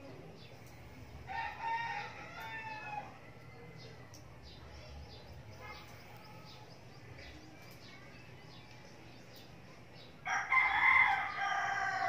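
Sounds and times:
rooster crowing: 1.3s - 3.3s, 10.3s - 12.0s.

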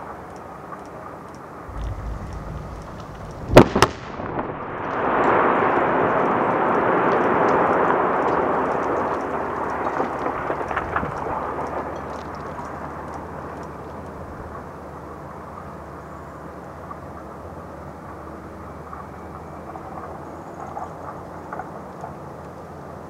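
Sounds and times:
small crackles: 0.0s - 23.0s
sharp blast cracks: 1.7s - 8.7s
rock blast rumble: 1.7s - 12.2s.

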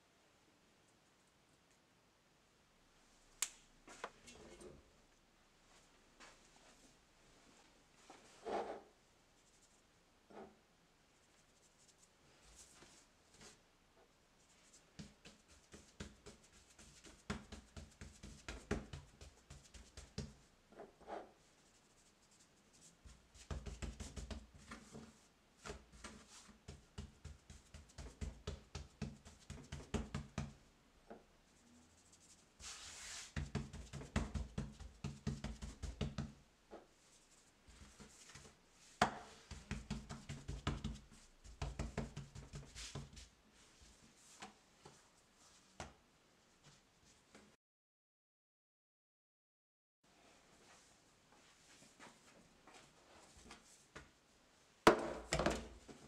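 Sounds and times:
hands patting dough: 14.7s - 20.4s, 23.0s - 30.6s, 32.6s - 36.4s, 37.6s - 43.3s.

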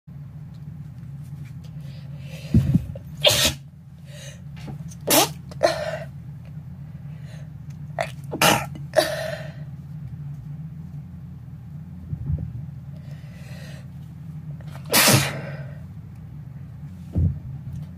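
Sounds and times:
person sneezing: 3.2s - 3.6s, 14.9s - 15.7s.

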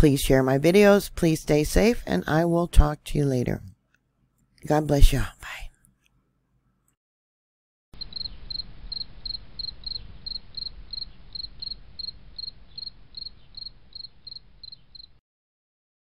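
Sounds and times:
cricket chirping: 8.0s - 15.2s.

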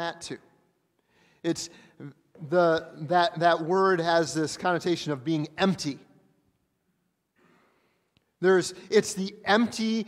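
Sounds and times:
faint short breath: 7.4s - 8.1s.

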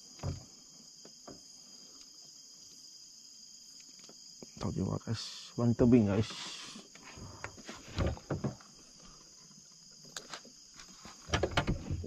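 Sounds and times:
crickets chirring: 0.0s - 12.0s
dull knocks and rustles: 7.4s - 9.6s, 10.2s - 12.0s.

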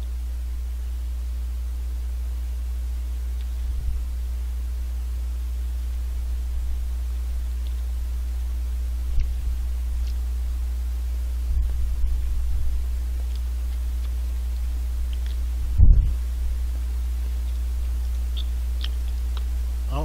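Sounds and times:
low hum: 0.0s - 20.0s
soft low bumps: 14.6s - 16.7s.

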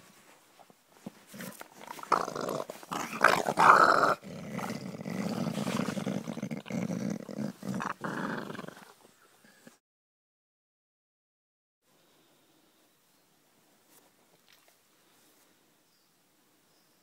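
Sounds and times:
dog growling: 1.3s - 9.0s.

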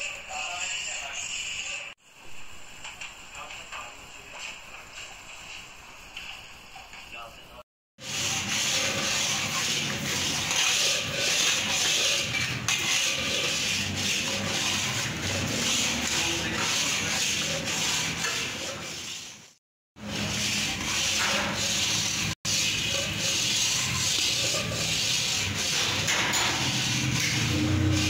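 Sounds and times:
metal spatula scraping a pan: 8.0s - 28.0s.

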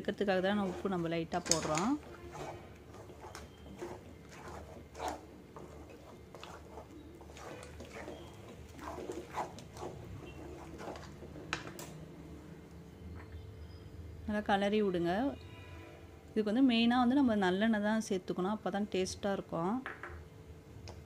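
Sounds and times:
wooden spatula scraping batter: 0.0s - 12.0s.

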